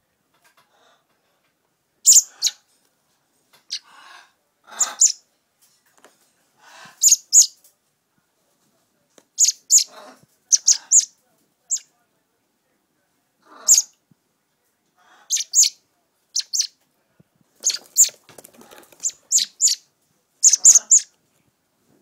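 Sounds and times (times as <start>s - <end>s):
quiet scratchy sounds: 0.0s - 22.0s
baby bird begging chirps: 2.0s - 2.6s, 4.8s - 5.2s, 7.0s - 7.6s, 9.4s - 9.9s, 10.5s - 11.1s, 13.6s - 14.0s, 15.3s - 15.8s, 16.4s - 16.8s, 17.6s - 18.2s, 19.0s - 19.8s, 20.4s - 21.1s.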